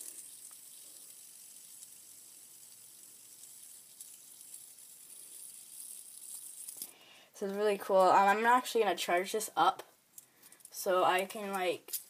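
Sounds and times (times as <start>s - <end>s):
fidget spinner whirring: 0.0s - 6.9s.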